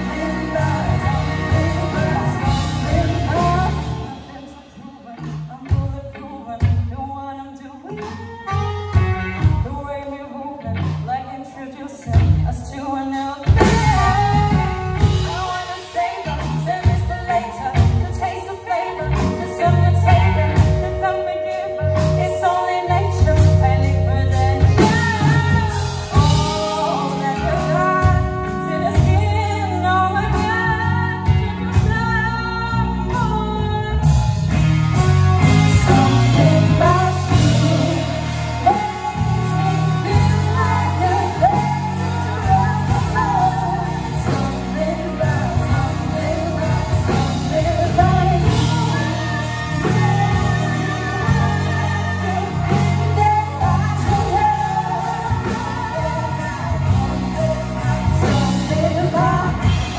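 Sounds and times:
live pop-rock band playing: 0.0 - 59.9
women singing: 0.0 - 59.9
saxophone: 7.9 - 10.2, 18.7 - 59.9.

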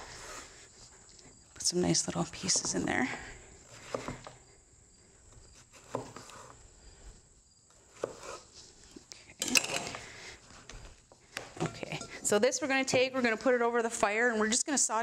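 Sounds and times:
knife cutting on wooden board: 5.6 - 6.6, 7.9 - 8.5.

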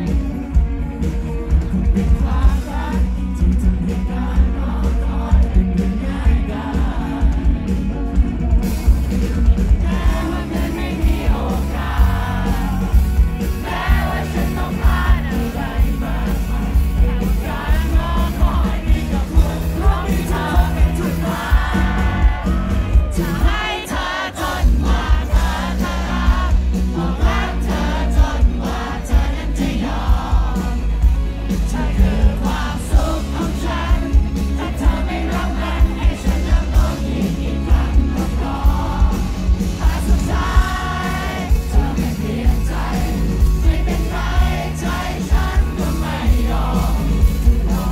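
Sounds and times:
man singing: 0.0 - 8.2, 9.6 - 30.9, 31.5 - 47.9
live pop band playing: 0.0 - 47.9.

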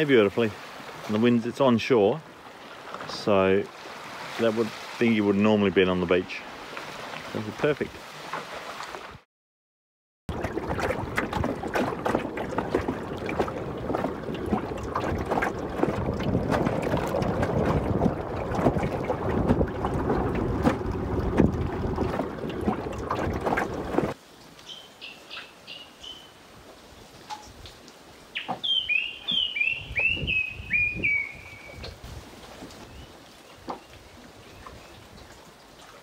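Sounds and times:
water slapping against hull: 6.5 - 9.2, 10.3 - 24.2
wind buffeting microphone: 10.4 - 24.2, 29.3 - 33.1.

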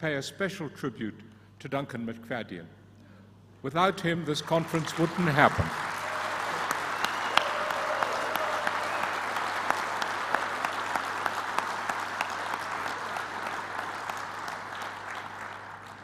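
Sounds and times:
audience applauding: 4.4 - 16.0.

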